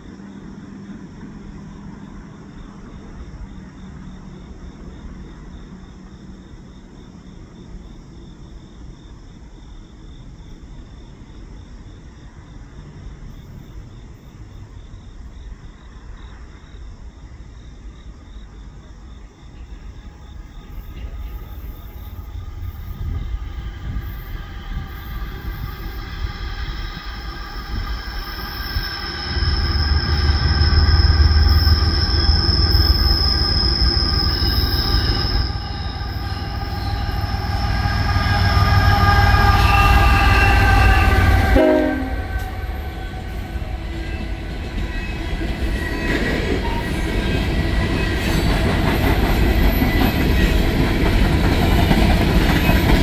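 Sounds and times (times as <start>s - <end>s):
insects chirping: 0.0s - 53.0s
diesel locomotive rumbling: 18.1s - 53.0s
steady whining tones: 20.6s - 45.8s.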